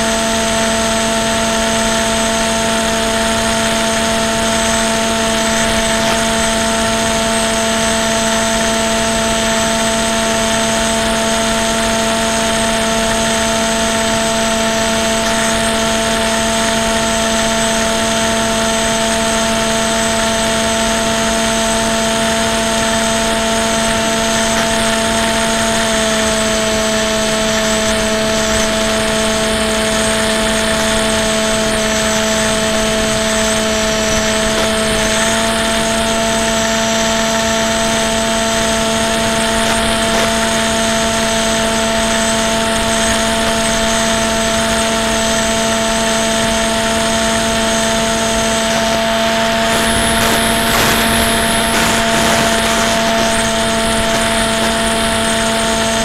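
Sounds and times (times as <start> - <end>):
model plane motor whine: 0.0 - 56.0
airflow hiss: 49.5 - 55.4.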